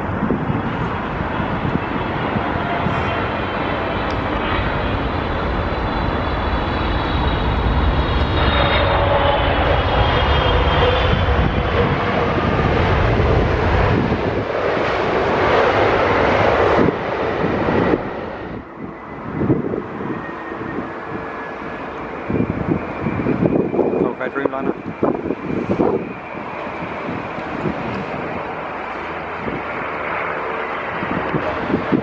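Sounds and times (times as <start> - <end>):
jet engines landing: 0.0 - 32.0.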